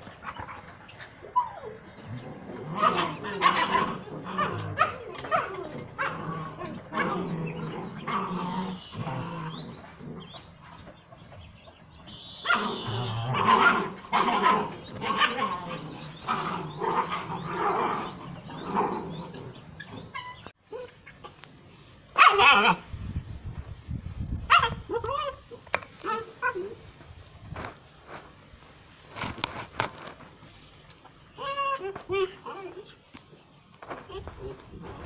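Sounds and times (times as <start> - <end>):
puppies barking: 0.2 - 10.6, 12.0 - 21.3, 22.2 - 22.8.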